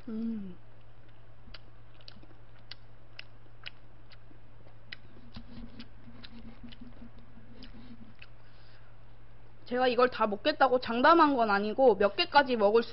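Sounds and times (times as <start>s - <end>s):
steady low hum: 0.0s - 12.9s
chewing clicks: 1.0s - 8.4s.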